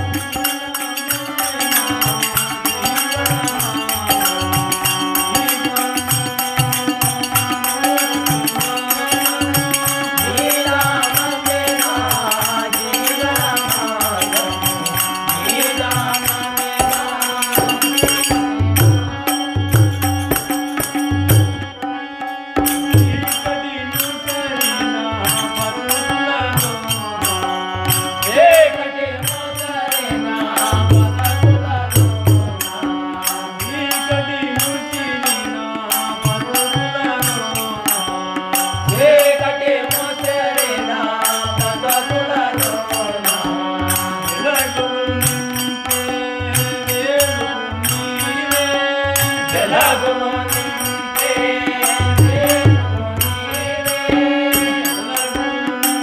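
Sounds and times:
hand cymbals struck: 0:00.0 - 0:21.7
harmonium chords: 0:00.0 - 0:56.0
men singing: 0:00.0 - 0:56.0
tabla: 0:00.0 - 0:56.0.

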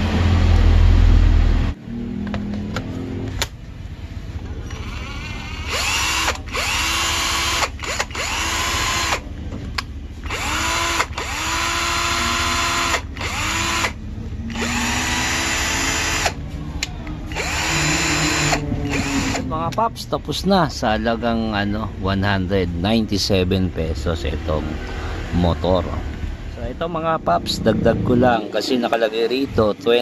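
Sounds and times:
cordless drill whining: 0:04.7 - 0:09.2, 0:10.2 - 0:16.4, 0:17.3 - 0:19.4.

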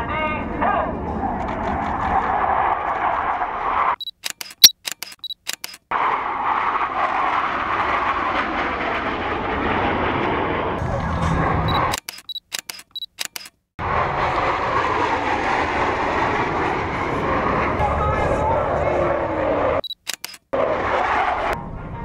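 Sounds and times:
camera shutter clicks: 0:04.0 - 0:05.9, 0:11.7 - 0:13.6, 0:19.9 - 0:20.5
jets roaring overhead: 0:05.9 - 0:11.7, 0:13.8 - 0:19.8, 0:20.6 - 0:22.0.

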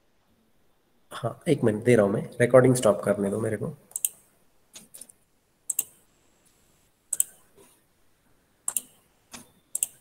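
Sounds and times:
computer mouse clicks: 0:03.9 - 0:06.0, 0:07.1 - 0:07.7, 0:08.7 - 0:10.0.

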